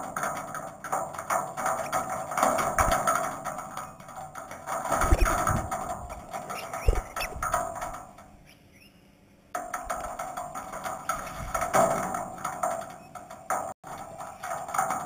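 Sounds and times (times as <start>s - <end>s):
faint bird chirps: 6.5s - 7.5s, 8.4s - 9.2s.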